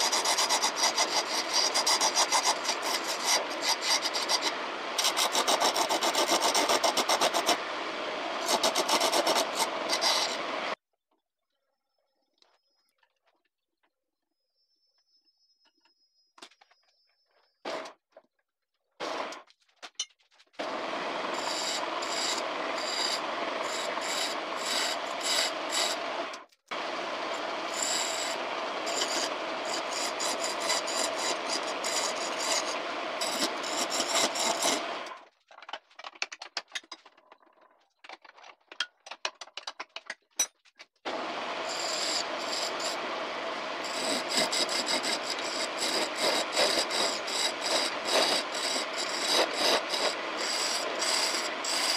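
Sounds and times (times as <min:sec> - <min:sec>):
chisel scraping spinning wood: 0:00.0 - 0:10.8, 0:20.6 - 0:35.2, 0:41.1 - 0:51.9.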